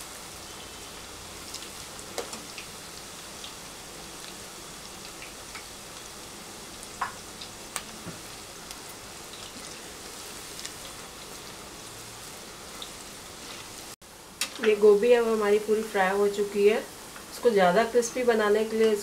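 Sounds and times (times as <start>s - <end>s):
hot oil sizzling: 0.0s - 19.0s.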